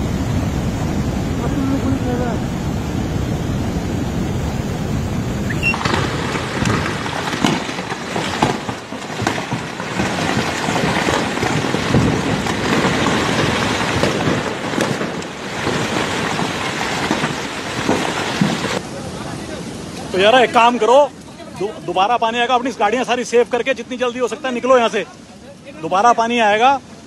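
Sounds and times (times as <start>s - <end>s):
floodwater rushing: 0.0s - 27.0s
rocks crashing down: 5.6s - 18.8s.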